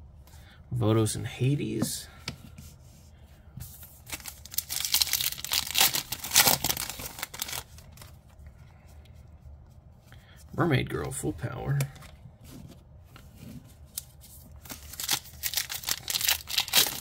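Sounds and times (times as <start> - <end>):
foil wrapper crinkling and tearing: 4.0 - 8.1, 14.6 - 17.0.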